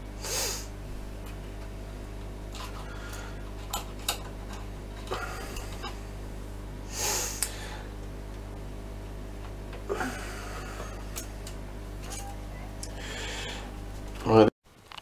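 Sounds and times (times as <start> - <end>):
steady low hum: 0.0 - 14.5
man breathing out through nose: 0.2 - 0.7, 6.9 - 7.9, 12.9 - 13.7.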